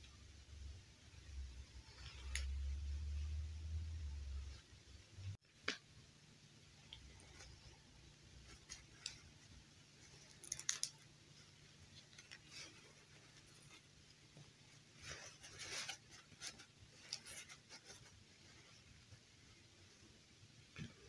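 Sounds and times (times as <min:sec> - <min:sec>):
fabric rustling: 0:06.8 - 0:19.9.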